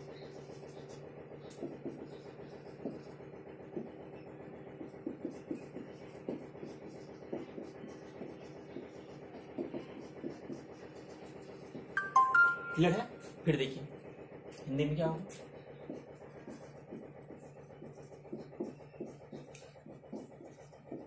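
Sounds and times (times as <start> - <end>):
steady low hum: 0.0 - 21.0
writing taps on a board: 1.5 - 4.0, 4.8 - 10.9, 15.8 - 17.2, 17.8 - 21.0.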